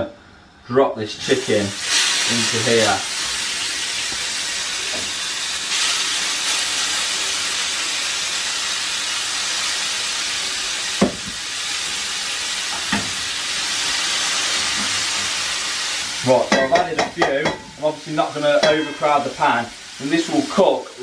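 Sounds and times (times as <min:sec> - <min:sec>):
chicken sizzling in frying pan: 0:01.2 - 0:21.0
metal tongs knocking on pan: 0:18.6 - 0:19.1.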